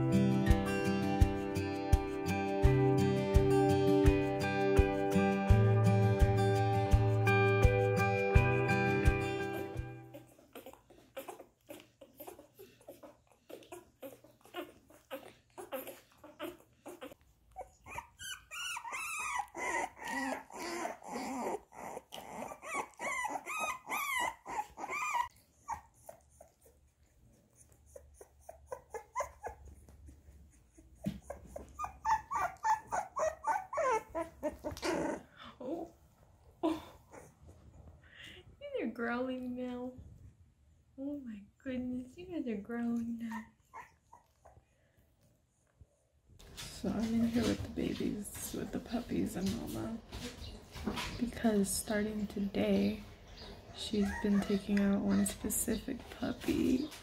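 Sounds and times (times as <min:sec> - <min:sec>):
puppies whimpering and squealing: 0:09.0 - 0:36.0, 0:36.6 - 0:37.7, 0:43.2 - 0:44.7, 0:51.9 - 0:57.0.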